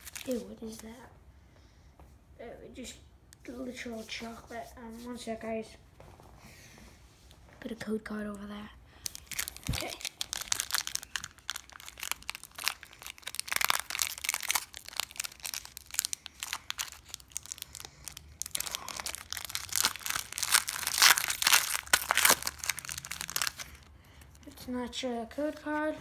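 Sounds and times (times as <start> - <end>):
foil pack crinkling and tearing: 0.0 - 0.4, 9.0 - 23.9.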